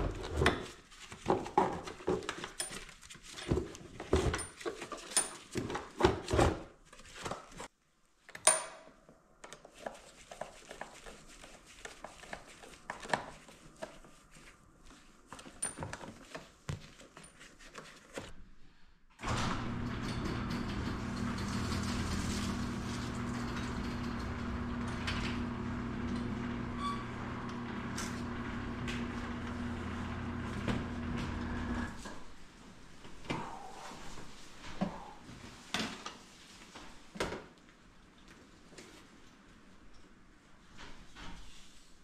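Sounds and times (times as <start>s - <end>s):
engine starting and idling: 19.2s - 26.7s.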